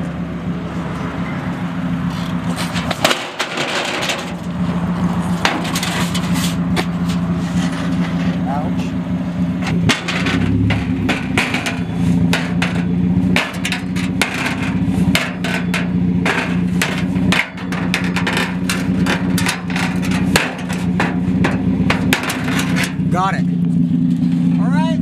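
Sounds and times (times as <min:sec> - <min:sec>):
car engine idling: 0:00.0 - 0:25.0
metallic clanks and knocks: 0:02.1 - 0:04.6, 0:05.4 - 0:09.0, 0:09.6 - 0:23.4.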